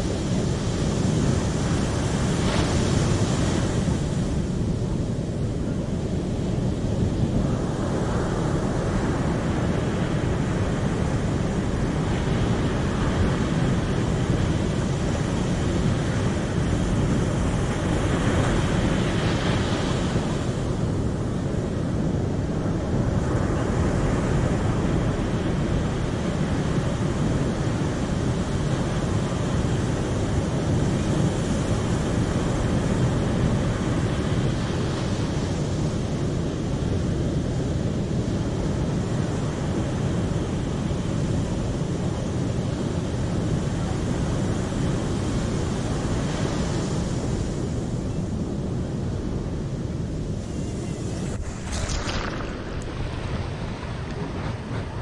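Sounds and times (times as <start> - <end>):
wind rumbling on microphone: 0.0 - 55.0
ocean surf breaking: 49.2 - 55.0.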